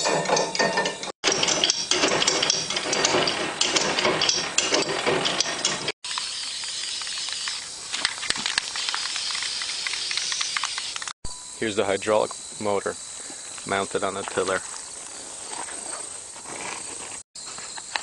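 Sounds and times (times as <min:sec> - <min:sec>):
metallic clatter of spinning rotor: 0:00.0 - 0:11.1
steady hiss: 0:06.1 - 0:16.2.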